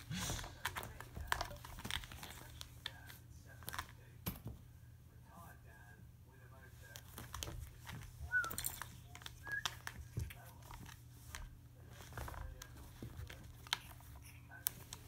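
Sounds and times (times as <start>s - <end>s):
cat scratching carpeted post: 9.1s - 15.0s.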